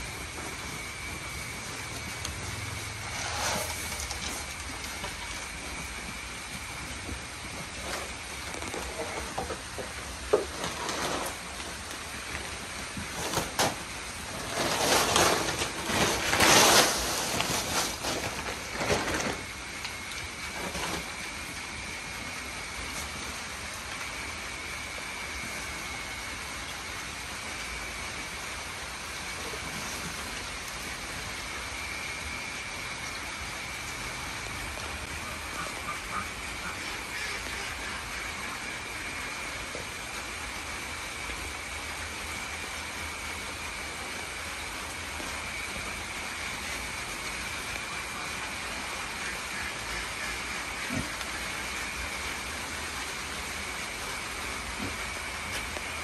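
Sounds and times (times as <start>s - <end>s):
pigs crunching feed pellets: 0.0s - 24.6s, 34.6s - 42.6s, 43.4s - 56.0s.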